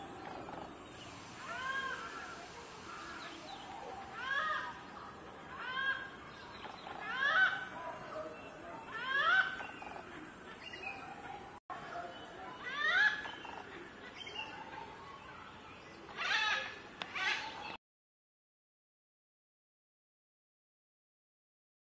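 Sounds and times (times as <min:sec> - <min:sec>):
hornbill cackling call: 0:05.6 - 0:07.8, 0:16.2 - 0:17.7.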